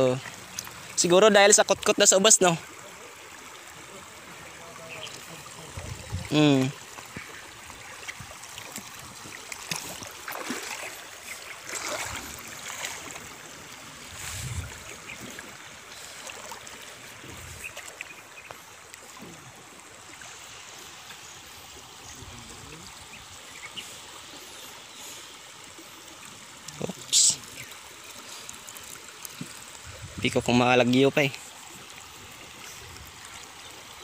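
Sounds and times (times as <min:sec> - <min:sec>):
splashes from wading: 0:02.6 - 0:21.6.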